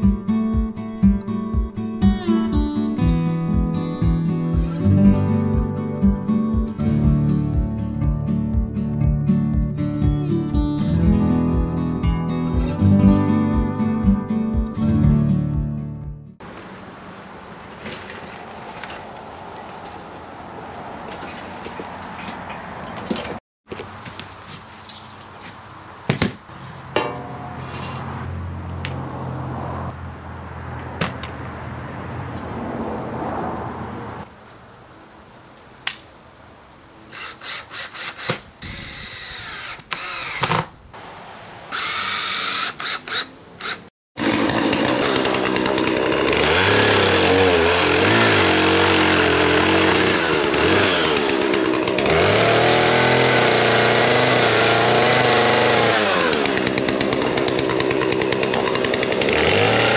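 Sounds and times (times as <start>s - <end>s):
cordless drill whirring: 37.1s - 40.7s, 41.7s - 43.9s
chainsaw cutting into a log: 37.2s - 40.7s, 41.7s - 59.9s.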